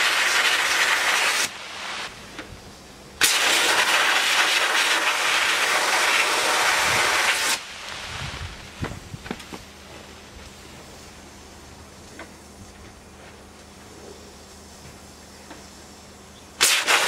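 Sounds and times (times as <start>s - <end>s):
sandblasting gun hissing: 0.0s - 8.8s, 15.4s - 17.0s.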